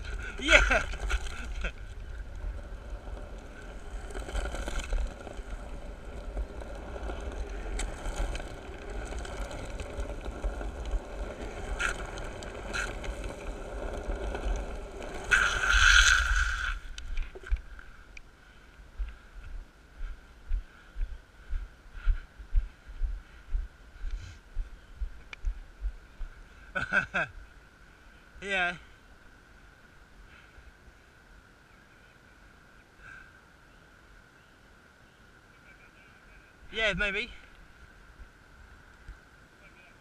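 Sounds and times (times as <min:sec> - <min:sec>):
skateboard wheels scraping sideways: 0:00.0 - 0:17.8
skateboard wheels rolling on asphalt: 0:00.0 - 0:31.7, 0:36.5 - 0:40.0.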